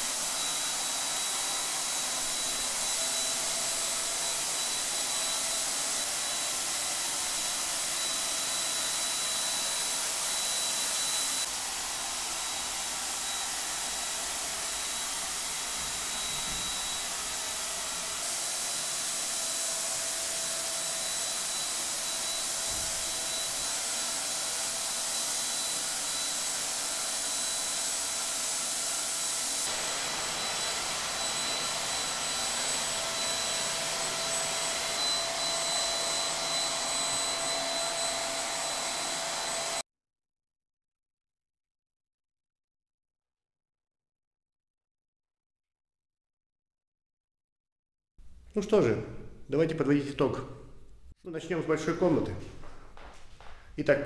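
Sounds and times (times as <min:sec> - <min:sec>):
paint sprayer rushing air and whine: 0:00.0 - 0:39.8.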